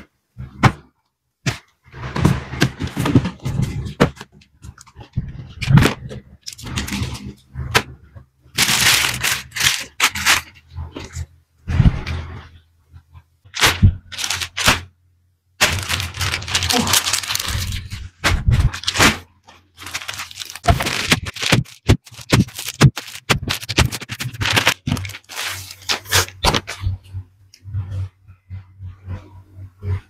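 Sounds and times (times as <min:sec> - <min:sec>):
plastic bags crinkling: 0:04.7 - 0:07.4, 0:08.5 - 0:11.2, 0:13.5 - 0:14.9, 0:15.6 - 0:26.9.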